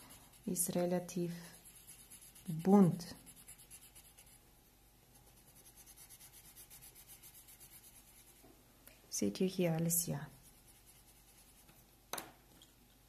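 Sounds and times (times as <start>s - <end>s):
pencil scratching on paper: 0.0s - 4.4s, 5.2s - 8.4s, 10.3s - 11.8s.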